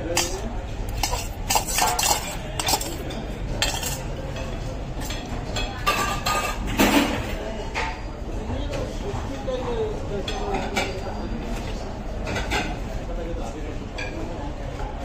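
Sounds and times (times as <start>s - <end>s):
cutlery clinking against plates: 0.0s - 8.0s, 10.3s - 11.0s, 12.2s - 12.8s.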